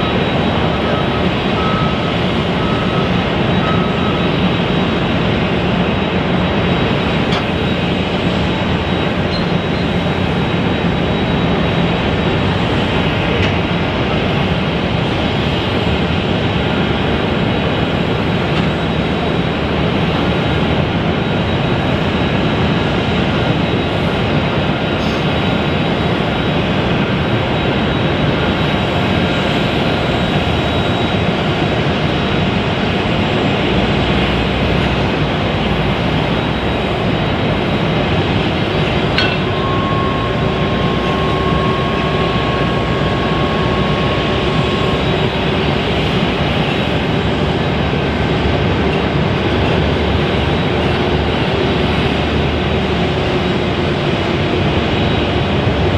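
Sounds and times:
steady higher tone: 0.0s - 17.5s, 36.6s - 48.0s
jet engines roaring: 0.0s - 55.9s
faint high whine: 35.5s - 51.4s.

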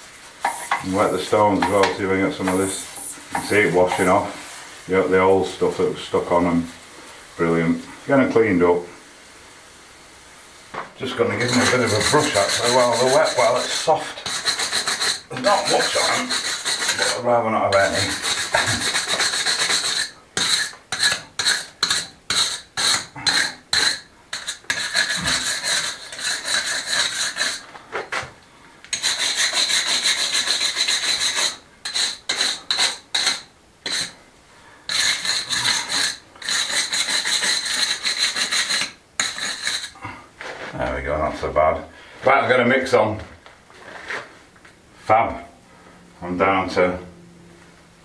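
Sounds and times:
brush scrubbing wet stone: 11.2s - 27.7s, 29.0s - 34.2s, 34.9s - 40.0s.

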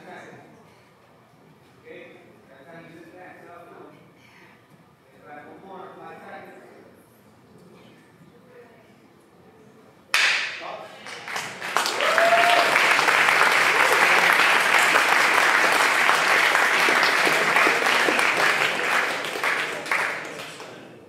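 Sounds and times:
audience applauding: 11.0s - 21.0s.

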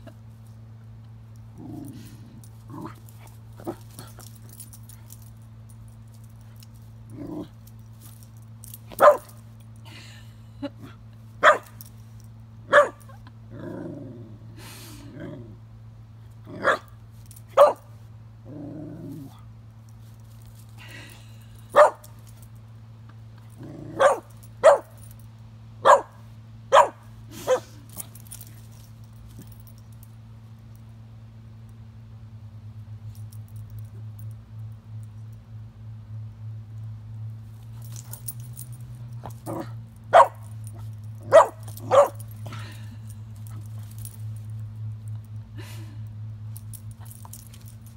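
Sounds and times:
dog growling: 1.5s - 4.1s, 7.1s - 7.6s, 13.5s - 15.6s, 18.4s - 19.4s, 23.6s - 24.2s
dog barking: 9.0s - 9.4s, 11.4s - 11.8s, 12.7s - 13.1s, 16.6s - 16.9s, 17.5s - 17.9s, 21.8s - 22.0s, 24.0s - 25.0s, 25.8s - 27.7s, 39.5s - 40.5s, 41.2s - 42.2s.

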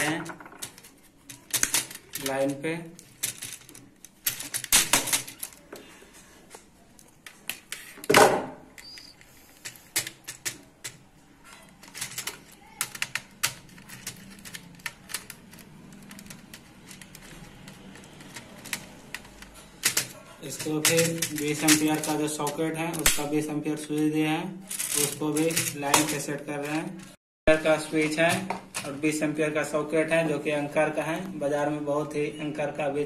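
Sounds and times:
plastic clicks and rattles: 0.0s - 2.4s, 8.8s - 23.2s.

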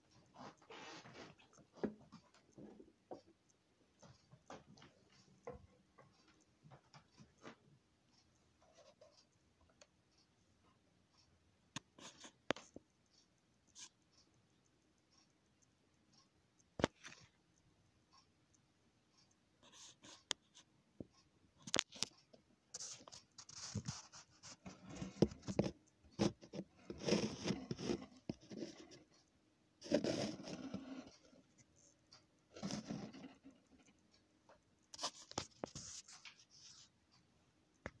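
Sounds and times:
scraping and rubbing handling noise: 0.0s - 3.3s, 21.7s - 34.2s, 34.9s - 37.0s.

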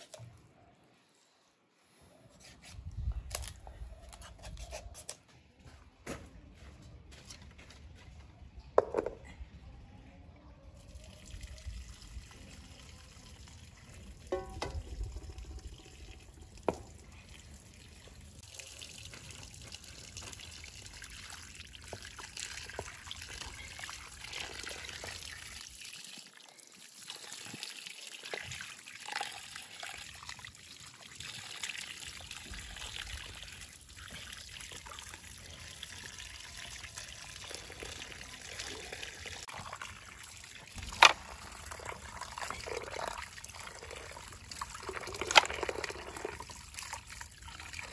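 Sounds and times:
tap water running into bowl: 14.0s - 17.1s, 34.5s - 47.9s
metal pot clanking on bricks: 14.3s - 15.1s.

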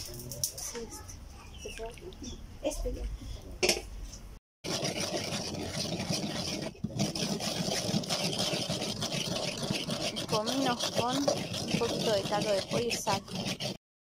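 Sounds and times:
stone pestle grinding in bowl: 4.6s - 13.8s.

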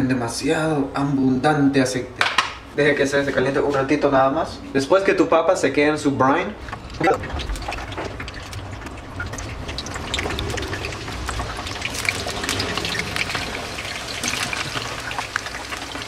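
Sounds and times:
oil sizzling and crackling: 6.6s - 16.0s.

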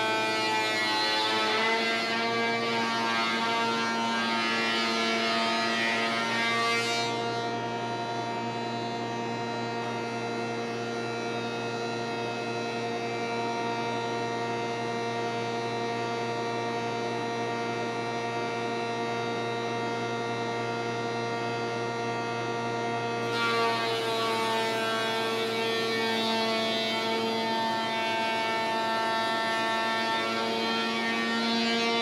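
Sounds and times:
spindle shaper machine hum: 0.0s - 32.0s.

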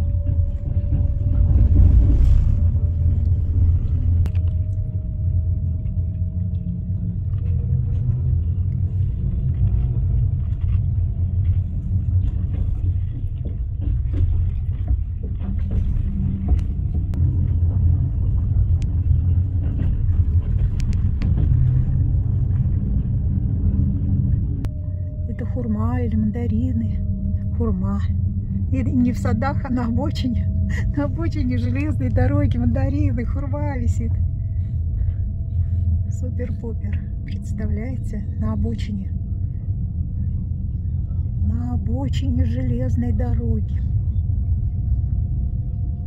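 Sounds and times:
train clicks and rattles: 0.0s - 4.8s, 5.8s - 24.7s
train rumbling on track: 0.0s - 46.0s.

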